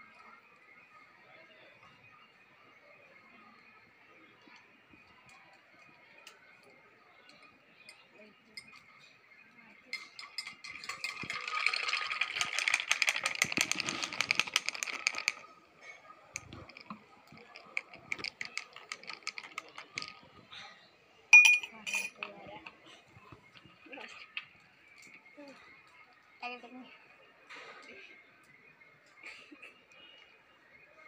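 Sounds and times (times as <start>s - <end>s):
ice cubes rattling: 10.2s - 20.3s, 21.4s - 22.3s
water pouring into glass: 10.4s - 15.4s.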